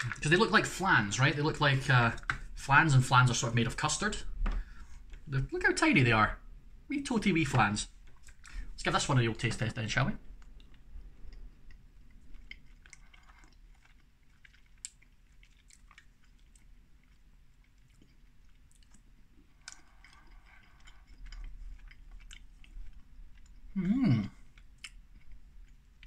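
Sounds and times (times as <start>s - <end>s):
person chewing: 10.2s - 26.0s
person humming: 23.8s - 24.4s.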